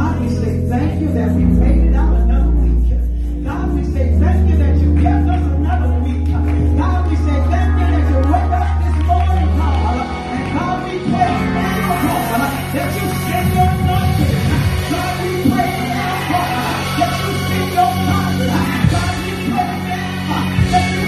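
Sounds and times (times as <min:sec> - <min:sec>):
instrumental accompaniment: 0:00.0 - 0:21.0.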